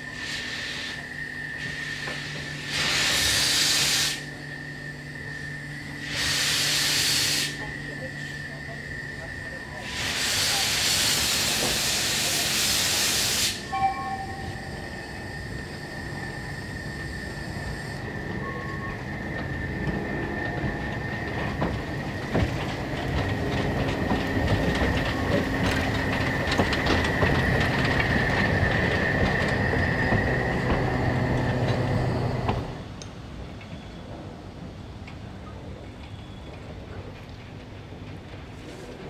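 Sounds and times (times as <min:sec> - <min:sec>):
steam train rolling past: 0:00.0 - 0:39.0
high wheel squeal: 0:13.6 - 0:21.7
wheels clicking over rail joints: 0:18.6 - 0:33.8, 0:35.0 - 0:39.0.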